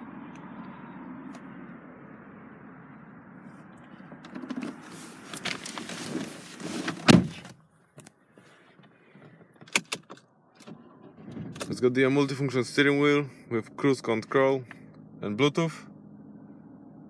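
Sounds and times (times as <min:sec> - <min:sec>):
outside noise: 0:00.0 - 0:17.0
rustling and shuffling in seat: 0:03.4 - 0:12.0
car door shutting: 0:04.2 - 0:07.6.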